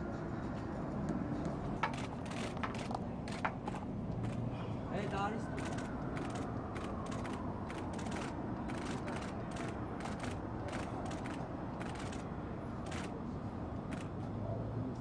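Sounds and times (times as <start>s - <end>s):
camera shutters clicking: 1.8s - 4.5s, 5.6s - 12.2s.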